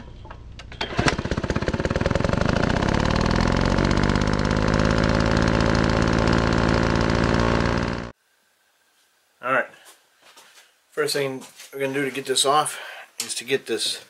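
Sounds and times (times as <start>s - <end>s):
engine revving: 0.8s - 8.1s.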